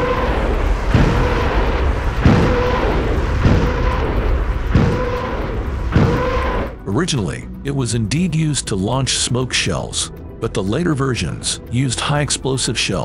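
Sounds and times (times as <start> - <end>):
rocket launch blasts: 0.0 - 6.8
shrill howling of rockets: 0.0 - 6.8.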